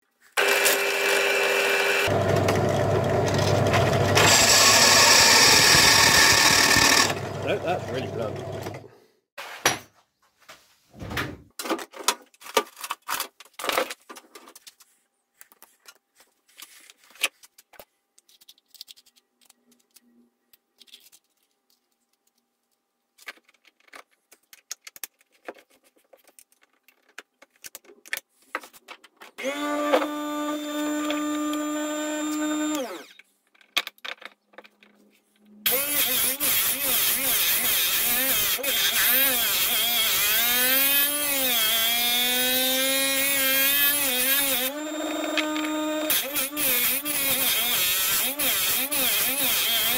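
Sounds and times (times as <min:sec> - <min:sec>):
drill bit sharpener motor running: 0:00.4 - 0:08.9, 0:29.4 - 0:33.1, 0:35.7 - 0:49.9.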